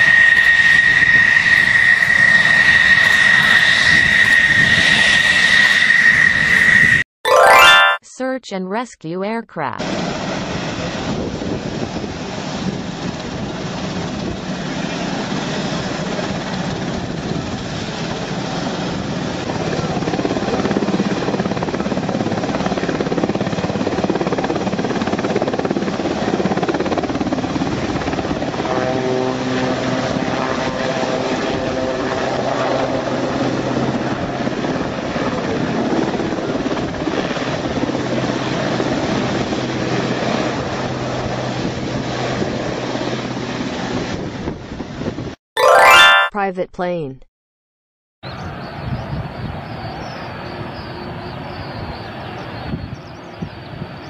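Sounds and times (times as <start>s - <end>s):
helicopter rotor and turbine: 0.0s - 7.0s, 9.8s - 45.4s.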